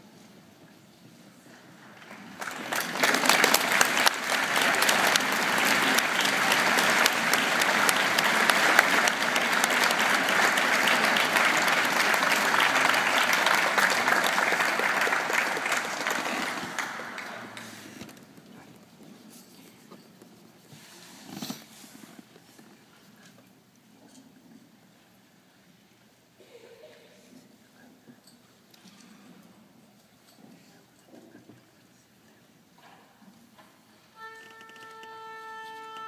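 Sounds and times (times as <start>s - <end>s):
audience applauding: 2.0s - 18.1s.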